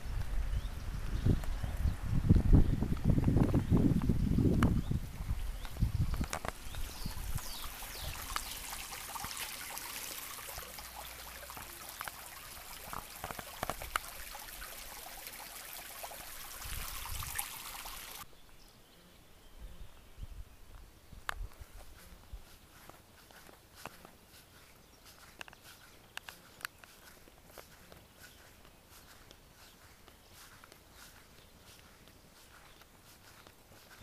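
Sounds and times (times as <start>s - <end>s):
stream rushing: 6.6s - 18.2s.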